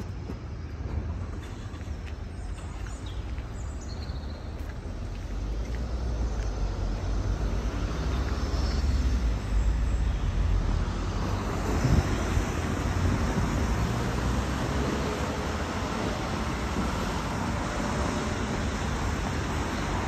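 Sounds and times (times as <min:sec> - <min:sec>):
road traffic rumble: 0:00.0 - 0:20.0
freight train moving: 0:10.3 - 0:20.0.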